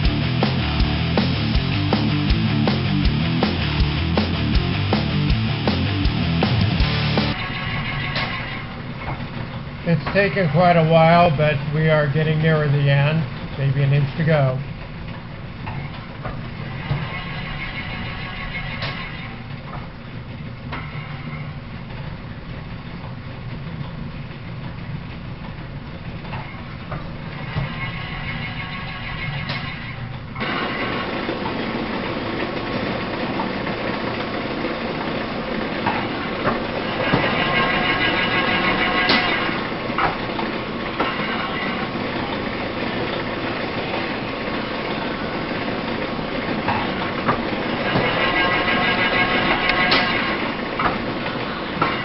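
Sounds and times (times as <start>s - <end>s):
metal planer rumbling: 23.3s - 52.0s.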